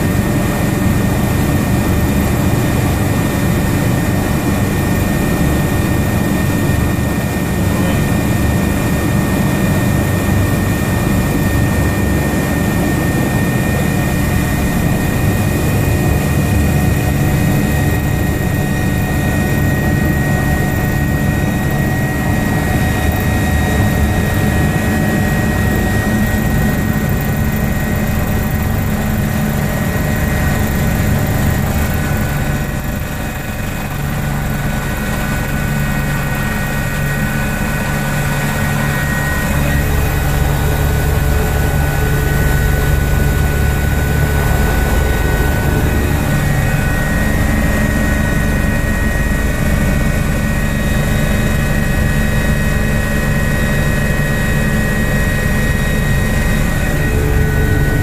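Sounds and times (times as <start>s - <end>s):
helicopter turbine and rotor drone: 0.0s - 58.0s.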